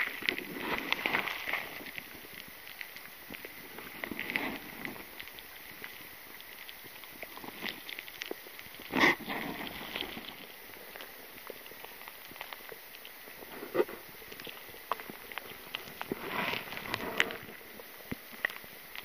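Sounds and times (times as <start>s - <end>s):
river water lapping and dripping: 0.0s - 19.0s.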